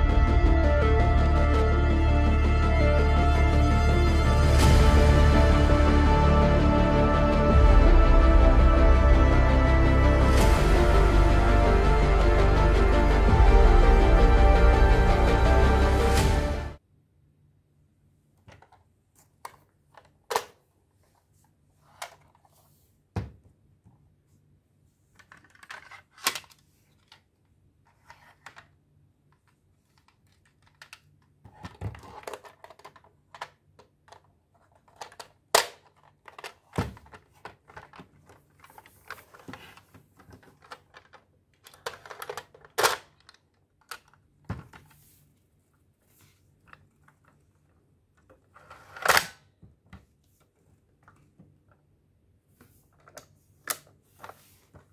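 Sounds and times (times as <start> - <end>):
plastic scraping and rubbing: 25.2 - 28.8, 29.4 - 45.3
plastic toy parts clicking: 29.9 - 44.2.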